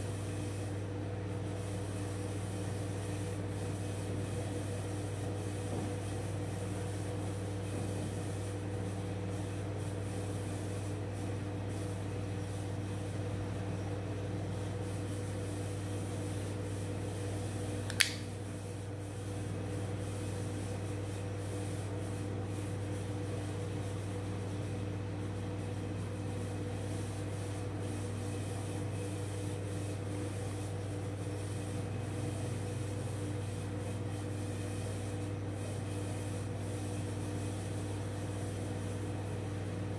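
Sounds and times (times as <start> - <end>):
knife blade snapping open: 17.9 - 18.2.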